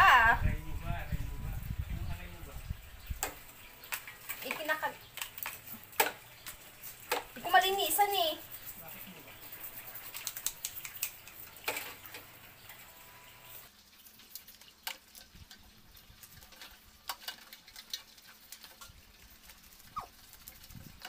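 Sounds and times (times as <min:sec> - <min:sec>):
toothbrush scrubbing crab shell: 0:03.8 - 0:12.6, 0:13.4 - 0:21.0.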